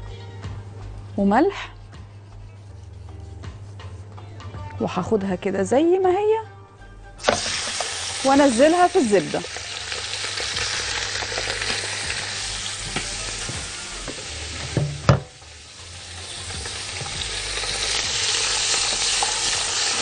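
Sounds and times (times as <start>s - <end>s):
chicken sizzling in butter: 7.2s - 20.0s.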